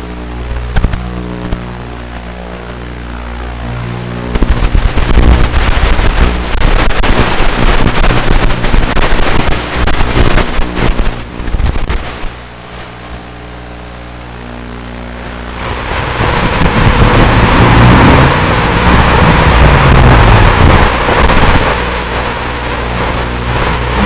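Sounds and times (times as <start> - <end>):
quadcopter motors buzzing: 0.0 - 6.6, 12.4 - 24.0
rough crackling noise: 0.0 - 24.0.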